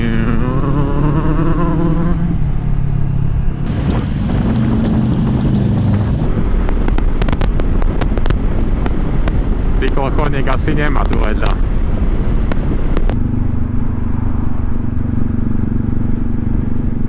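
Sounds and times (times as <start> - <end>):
motorcycle engine running: 0.0 - 17.0
wind noise on microphone: 3.4 - 17.0.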